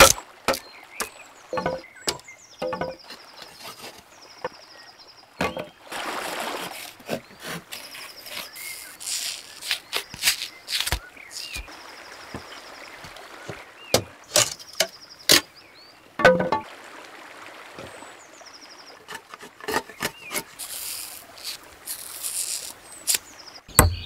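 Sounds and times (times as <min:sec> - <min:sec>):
hatchet chopping wood: 0:00.0 - 0:03.0, 0:23.7 - 0:24.0
wood splitting: 0:00.0 - 0:03.0, 0:06.5 - 0:11.7, 0:19.1 - 0:24.0.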